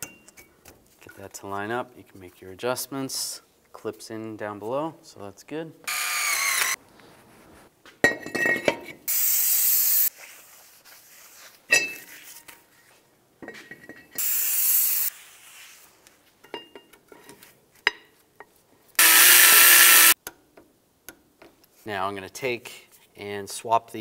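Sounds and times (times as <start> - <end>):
aerosol can spraying: 9.1 - 10.1, 14.2 - 15.1.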